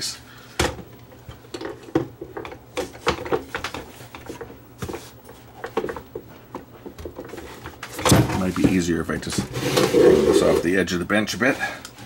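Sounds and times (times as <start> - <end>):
equipment being handled clicks and knocks: 0.6 - 8.8.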